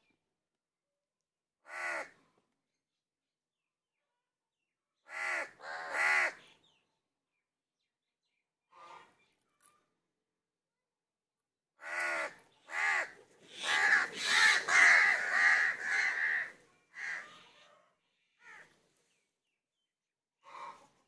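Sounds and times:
crows cawing: 1.7s - 2.2s, 5.1s - 6.4s, 11.8s - 17.5s, 18.4s - 18.7s, 20.4s - 20.9s.

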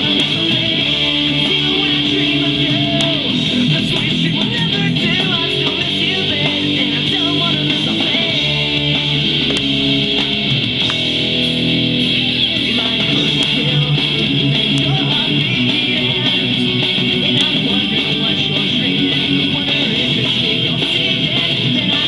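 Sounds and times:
pop-rock song with vocals: 0.0s - 22.0s.

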